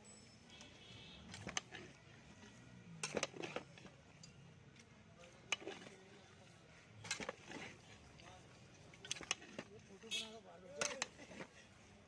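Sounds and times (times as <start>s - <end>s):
metal ladle scraping metal pot: 7.0s - 8.0s.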